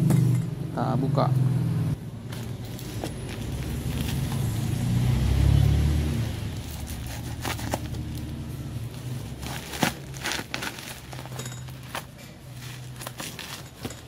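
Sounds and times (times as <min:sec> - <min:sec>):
vehicle engine rumble: 0:00.0 - 0:14.0
scissors cutting plastic wrapping: 0:02.3 - 0:04.8, 0:06.3 - 0:14.0.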